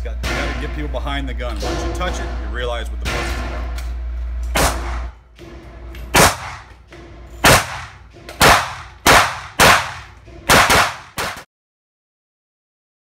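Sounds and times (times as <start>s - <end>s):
gunshot echo off walls: 4.5s - 5.2s, 6.1s - 6.7s, 7.4s - 11.4s
pistol shots: 4.5s - 5.2s, 6.1s - 6.7s, 7.4s - 11.4s.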